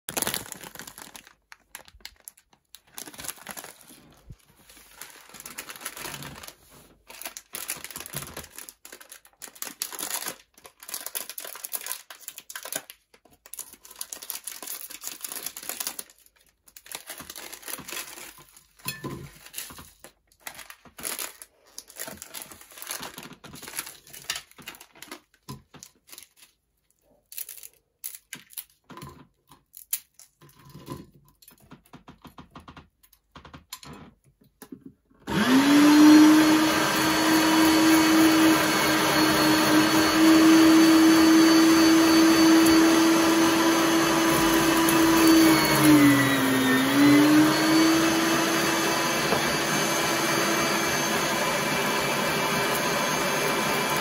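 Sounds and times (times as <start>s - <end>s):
plastic packets tearing open: 0.1s - 29.0s
plastic packets crinkling: 0.1s - 30.5s.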